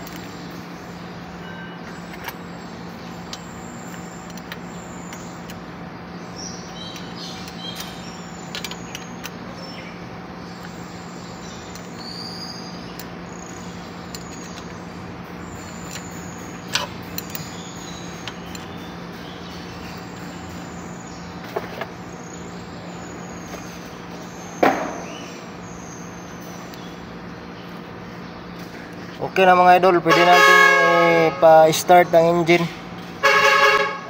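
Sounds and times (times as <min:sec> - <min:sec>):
birds chirping: 0:00.0 - 0:34.0
low background hum: 0:00.0 - 0:34.0
sharp knocks: 0:24.6 - 0:25.1.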